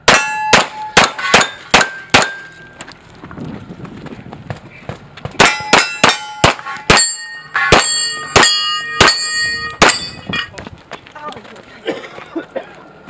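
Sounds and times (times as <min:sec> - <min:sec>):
steel target plates clanging: 0:00.1 - 0:02.8, 0:05.4 - 0:10.6.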